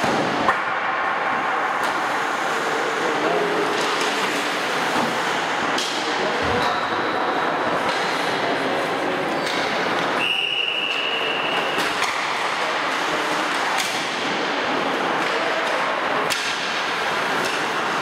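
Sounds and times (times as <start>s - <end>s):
hockey pucks and sticks cracking: 3.6s - 6.1s, 10.9s - 18.0s
whistle: 10.2s - 11.8s.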